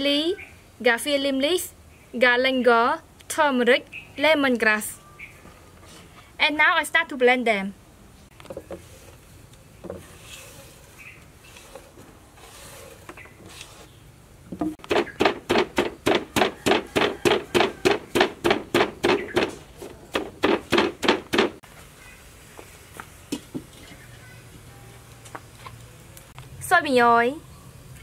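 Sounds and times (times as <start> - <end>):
pestle pounding in mortar: 14.6 - 21.6.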